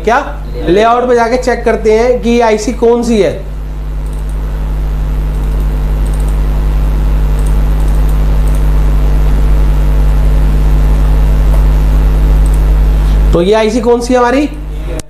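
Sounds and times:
buzzy electrical hum: 0:00.0 - 0:15.0
faint ticks: 0:04.0 - 0:04.4, 0:05.3 - 0:06.4, 0:07.3 - 0:08.7.

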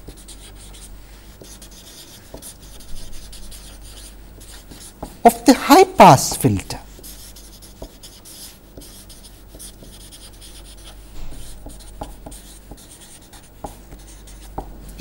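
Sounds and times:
marker scratching on paper: 0:00.0 - 0:06.3, 0:06.9 - 0:14.7
steady low hum: 0:00.0 - 0:15.0.

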